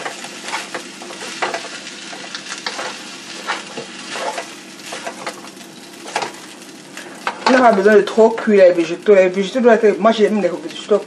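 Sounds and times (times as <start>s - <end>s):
spatula scraping and knocking wok: 0.0s - 6.6s
food sizzling in a wok: 0.0s - 11.0s.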